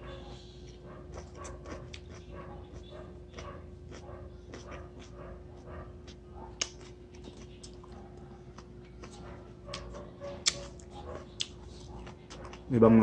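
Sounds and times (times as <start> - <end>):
faint steady hum: 0.0 - 13.0
crisp chewing crunches: 0.6 - 13.0
wet mouth clicks: 9.0 - 12.6.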